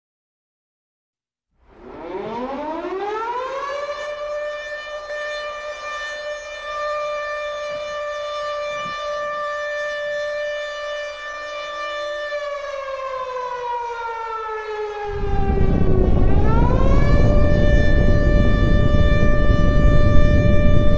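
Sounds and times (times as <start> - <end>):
air-raid siren wailing: 1.6 - 20.9
deep rumbling explosion blast: 15.1 - 20.9.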